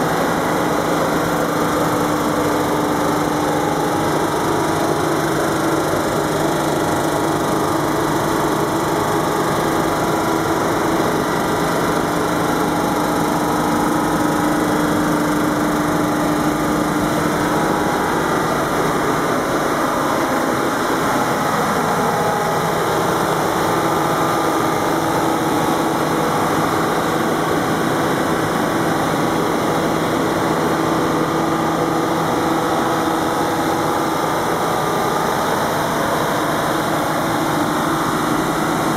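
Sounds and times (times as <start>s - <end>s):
diesel generator engine drone: 0.0s - 38.9s.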